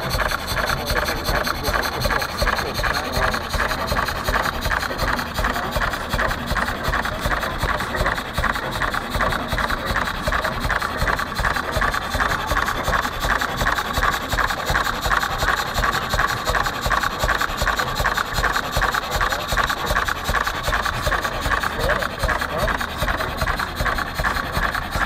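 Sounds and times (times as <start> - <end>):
single-cylinder engine running: 0.0 - 25.0.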